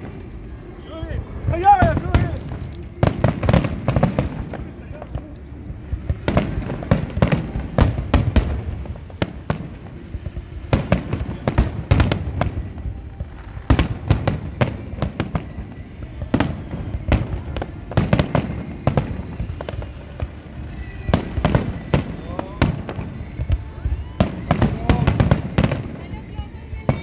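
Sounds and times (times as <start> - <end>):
low rumble: 0.0 - 18.0
fireworks bangs: 0.0 - 27.0.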